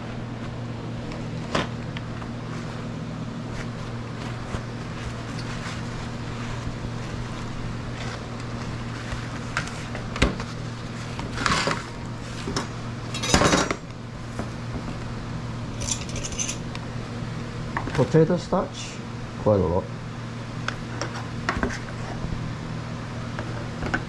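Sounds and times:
steady low hum: 0:00.0 - 0:24.0
paper towels rustling: 0:00.1 - 0:12.5.

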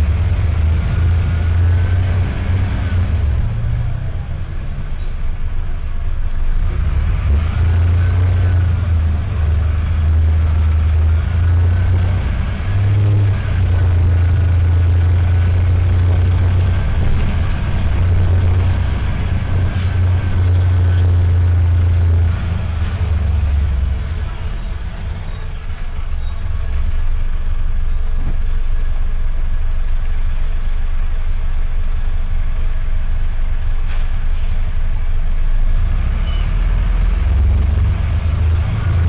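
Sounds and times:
bus diesel engine drone: 0:00.0 - 0:39.0.

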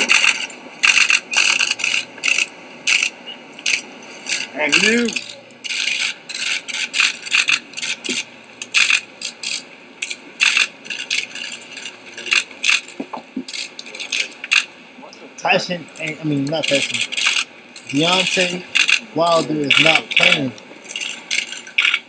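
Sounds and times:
camera shutters clicking: 0:00.0 - 0:11.4, 0:16.6 - 0:22.0.

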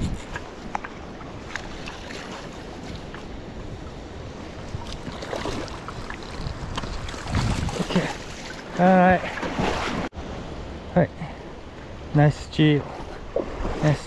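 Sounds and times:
wind buffeting microphone: 0:00.0 - 0:01.8, 0:02.7 - 0:08.5.

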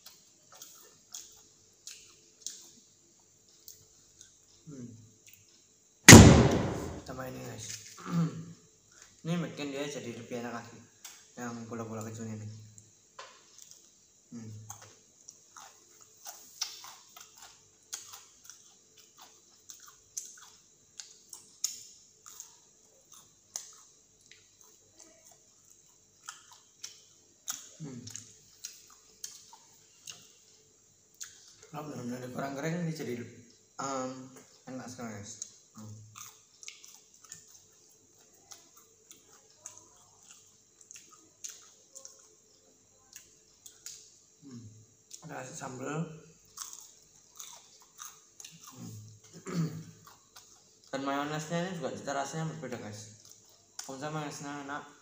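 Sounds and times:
person chewing crunchy snacks: 0:14.7 - 0:30.2, 0:36.1 - 0:42.4, 0:46.4 - 0:49.2.

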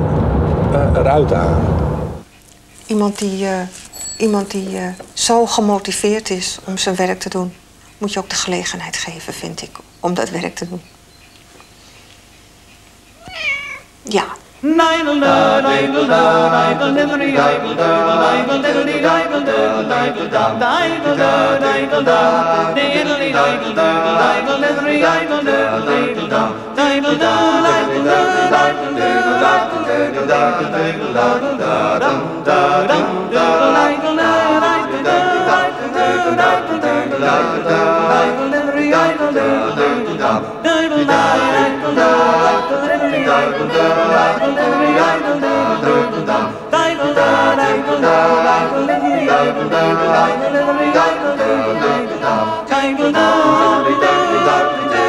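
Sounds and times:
choir singing a cappella: 0:14.6 - 0:55.0.

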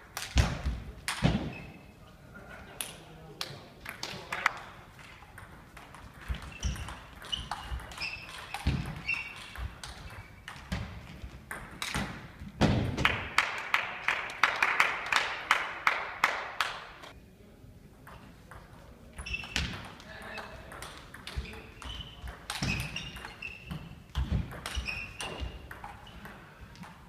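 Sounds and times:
sneakers squeaking on floor: 0:01.2 - 0:02.0, 0:06.1 - 0:11.2, 0:19.2 - 0:26.4.

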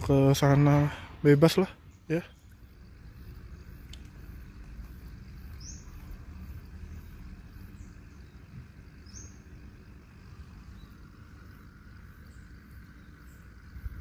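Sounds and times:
steady low rumble: 0:00.0 - 0:14.0
high bird chirps: 0:01.8 - 0:09.6.

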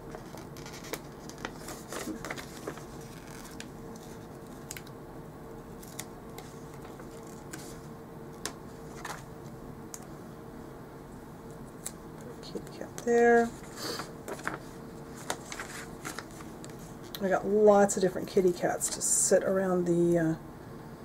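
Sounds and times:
faint steady hum: 0:00.0 - 0:21.0
paper rustling: 0:00.1 - 0:04.9, 0:05.8 - 0:09.3, 0:13.4 - 0:17.2.

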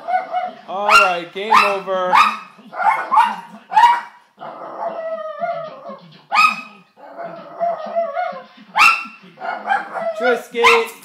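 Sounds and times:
dog barking: 0:00.0 - 0:04.2, 0:06.3 - 0:06.8, 0:08.8 - 0:11.0
dog whining: 0:04.4 - 0:08.5, 0:09.4 - 0:10.9.

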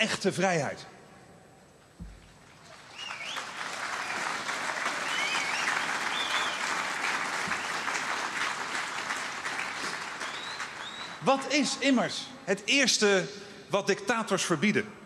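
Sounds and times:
crowd applauding: 0:02.4 - 0:11.6.

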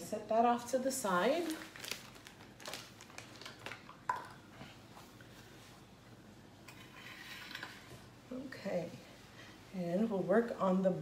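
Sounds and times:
soft rustling: 0:04.6 - 0:06.2.

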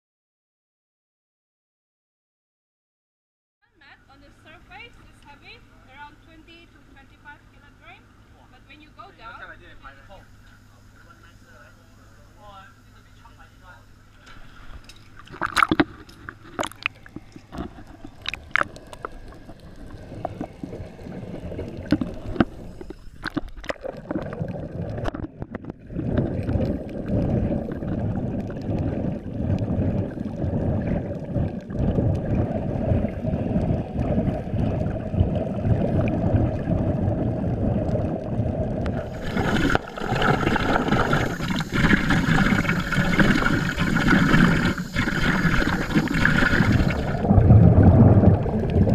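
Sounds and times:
water sloshing and splashing: 0:14.3 - 0:48.9
underwater bubbling and gurgling: 0:14.4 - 0:48.9.

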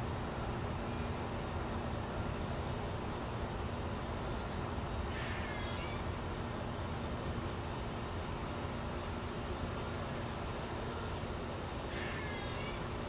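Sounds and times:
outdoor background noise: 0:00.0 - 0:13.0
songbirds chirping: 0:00.1 - 0:13.0
birds twittering: 0:02.2 - 0:06.2, 0:09.0 - 0:13.0.

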